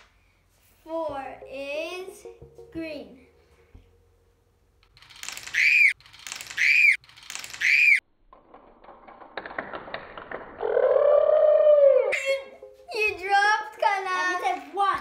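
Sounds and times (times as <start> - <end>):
high squeaky calls: 5.5 - 7.0, 7.6 - 8.0
plastic pieces clicking: 8.3 - 10.6.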